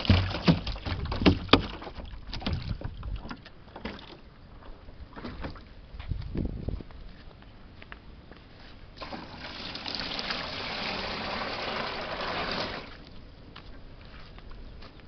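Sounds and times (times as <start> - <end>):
water pouring and splashing: 0.0 - 4.2, 9.0 - 13.0.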